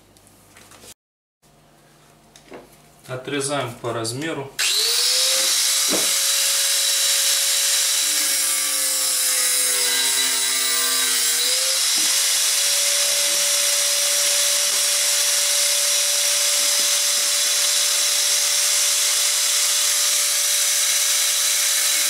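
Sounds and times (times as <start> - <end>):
power tool cutting: 4.6 - 22.0.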